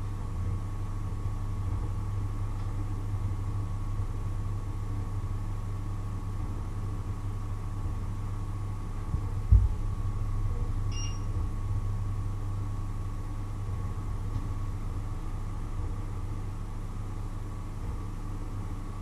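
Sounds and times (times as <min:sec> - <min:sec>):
short electronic beep: 0:10.9 - 0:11.3.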